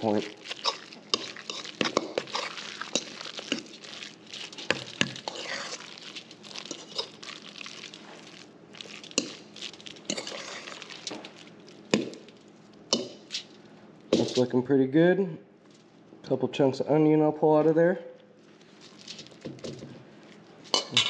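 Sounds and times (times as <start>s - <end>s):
fork clinking and scraping bowl: 0.4s - 7.4s, 9.1s - 9.4s, 10.0s - 11.3s, 20.6s - 21.0s.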